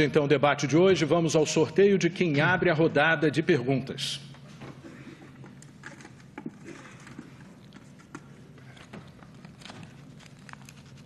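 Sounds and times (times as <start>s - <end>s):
clicks and rustles of handling: 4.4s - 11.0s.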